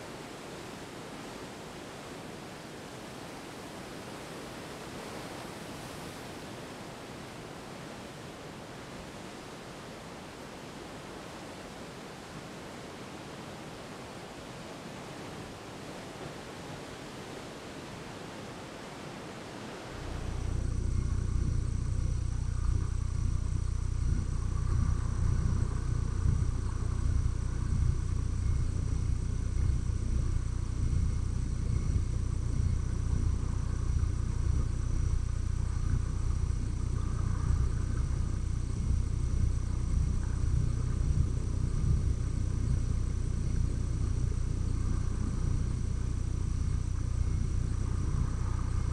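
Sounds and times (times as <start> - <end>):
surf hissing on rocky shore: 0.0 - 20.5
steady low rumble: 19.9 - 48.9.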